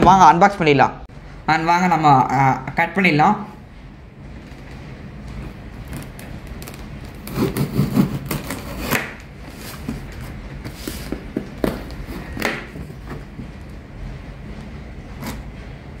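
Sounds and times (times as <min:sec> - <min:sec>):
blade slitting packing tape: 0:05.9 - 0:09.3.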